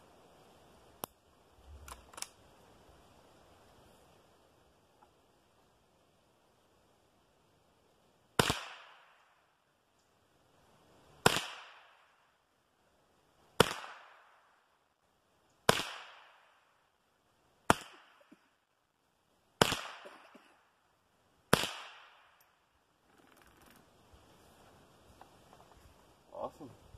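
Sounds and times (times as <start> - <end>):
rifle shots cracking: 8.4 - 9.0, 15.7 - 16.3, 19.6 - 20.4, 21.5 - 22.4.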